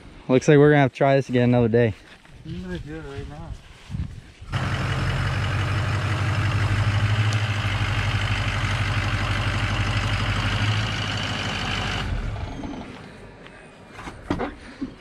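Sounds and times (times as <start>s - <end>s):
truck engine idling: 4.5s - 13.4s.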